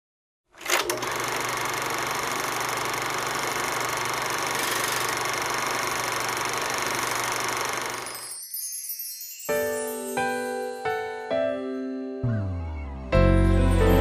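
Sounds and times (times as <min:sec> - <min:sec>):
film projector whirring: 0:00.5 - 0:08.2.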